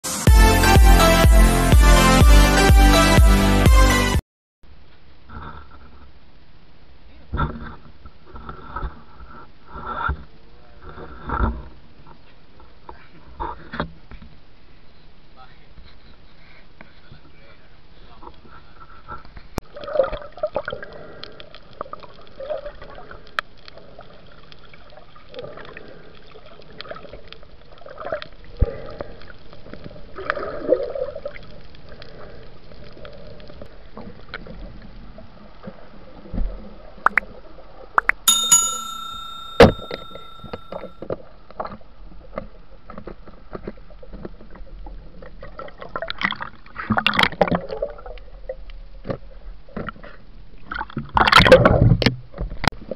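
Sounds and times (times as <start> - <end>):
underwater hiss and gurgle: 20.4 - 37.9
ringing tone: 38.3 - 41.0.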